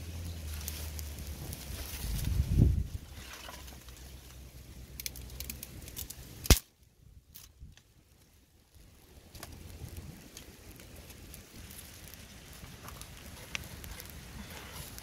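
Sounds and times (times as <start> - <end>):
sticks cracking and snapping: 3.2 - 7.9.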